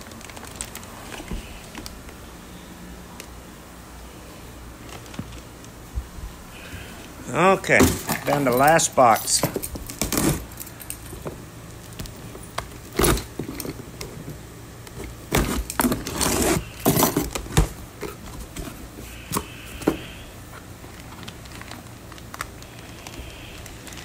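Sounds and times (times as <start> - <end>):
keys jingling: 7.7 - 11.2
tape and plastic tearing: 9.8 - 10.6, 14.9 - 18.8.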